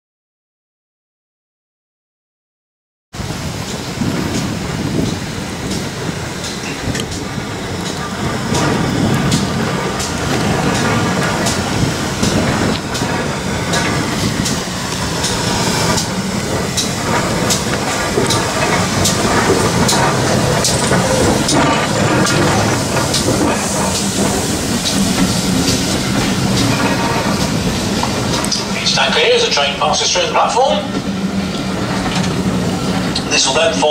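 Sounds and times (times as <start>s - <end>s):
train wheels clicking over rail joints: 3.2s - 33.9s
wind rumbling on microphone: 3.2s - 33.9s.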